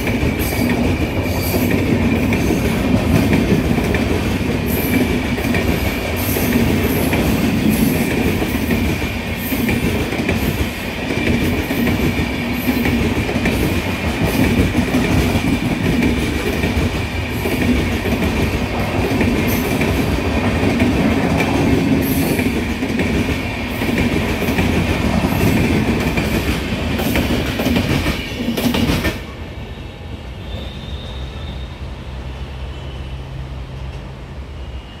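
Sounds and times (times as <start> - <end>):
train wheels rumbling on rails: 0.0 - 35.0
high wheel squeal: 29.6 - 33.5, 34.5 - 35.0.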